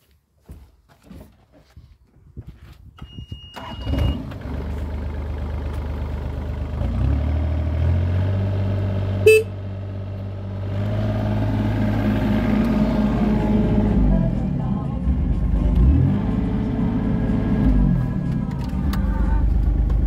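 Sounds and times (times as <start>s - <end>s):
short beep: 3.0s - 4.2s, 9.3s - 9.5s
diesel engine starting and running: 3.0s - 20.0s.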